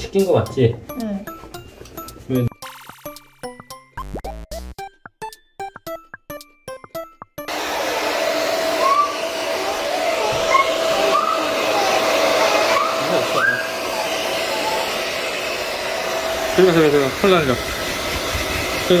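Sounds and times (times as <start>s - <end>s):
hair dryer blowing: 7.5s - 19.0s.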